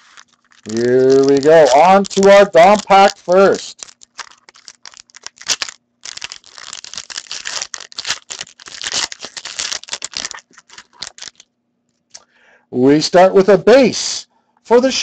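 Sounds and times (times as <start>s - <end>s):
foil wrapper crinkling: 0.0s - 11.5s.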